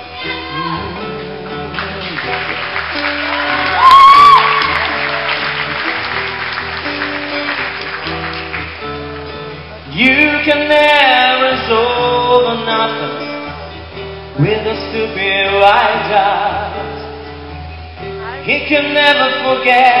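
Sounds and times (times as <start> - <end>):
man singing: 0.0 - 2.2, 9.9 - 13.8, 14.4 - 17.4, 18.3 - 20.0
acoustic guitar playing: 0.0 - 20.0.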